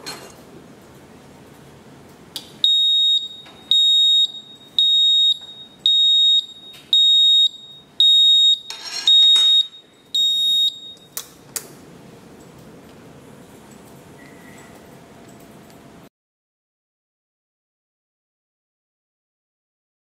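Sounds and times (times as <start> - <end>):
alarm buzzer beeping: 2.6 - 11.2.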